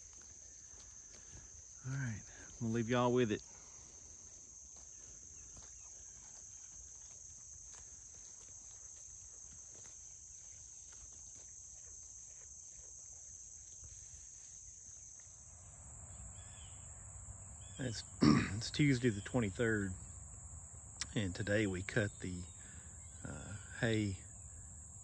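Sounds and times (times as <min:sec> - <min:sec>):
sheep grazing in grass: 0:00.0 - 0:24.8
crickets chirping: 0:00.0 - 0:25.0.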